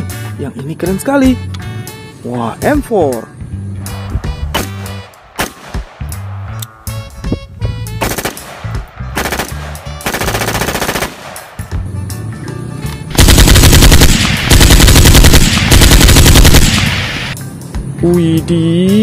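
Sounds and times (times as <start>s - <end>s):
automatic gunfire: 8.0s - 11.6s, 13.1s - 17.4s.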